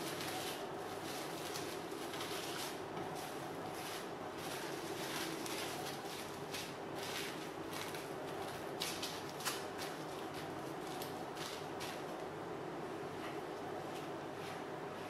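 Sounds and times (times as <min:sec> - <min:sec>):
cling film crinkling: 0:00.0 - 0:12.3.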